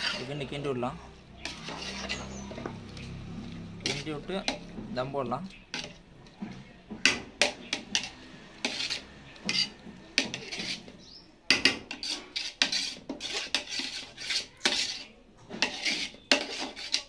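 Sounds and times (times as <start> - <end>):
rice rustling: 0.0 - 11.2
metal ladle scraping a pot: 0.0 - 17.0.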